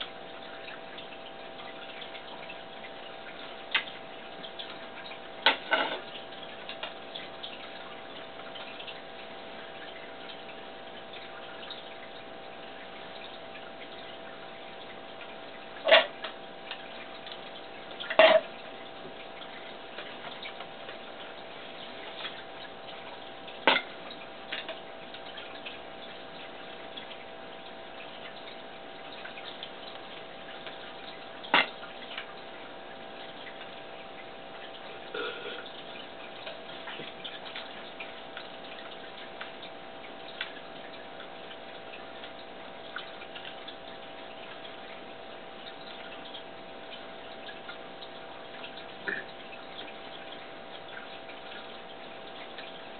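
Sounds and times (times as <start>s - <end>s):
faint hum: 0.0s - 52.9s.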